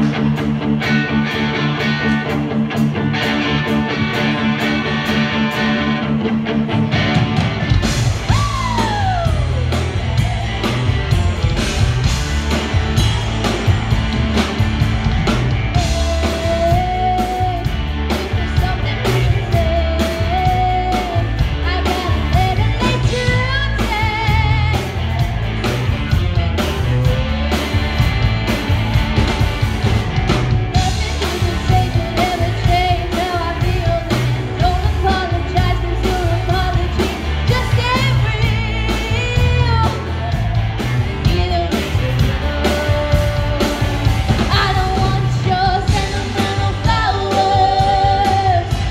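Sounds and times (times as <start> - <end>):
bass guitar sliding down: 0.0 - 48.9
drums: 0.0 - 48.9
electric guitar: 0.0 - 48.9
woman singing: 15.7 - 25.3, 30.8 - 40.4, 41.2 - 48.9.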